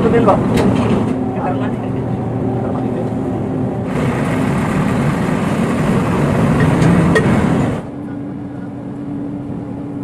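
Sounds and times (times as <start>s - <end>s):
heavy engine running: 0.0s - 10.0s.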